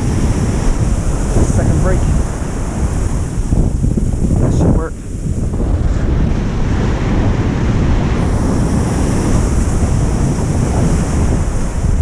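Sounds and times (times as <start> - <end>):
ocean surf breaking: 0.0 - 12.0
wind buffeting microphone: 0.0 - 12.0.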